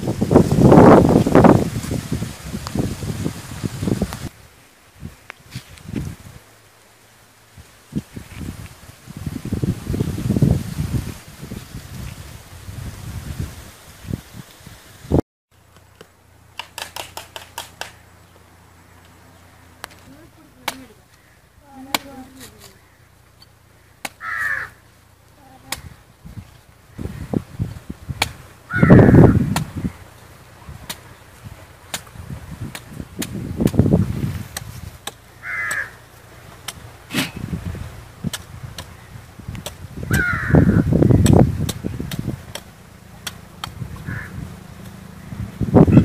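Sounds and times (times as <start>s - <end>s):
machete hacking coconut husk: 15.8s - 18.0s, 20.6s - 21.0s, 21.9s - 22.8s, 24.0s - 24.6s, 25.7s - 26.0s, 27.7s - 28.5s, 29.4s - 29.9s, 30.8s - 37.5s, 38.2s - 40.3s, 41.1s - 44.1s
crows cawing: 21.1s - 21.6s, 22.7s - 24.9s, 28.6s - 30.0s, 35.3s - 36.1s, 40.0s - 41.2s, 44.0s - 44.4s.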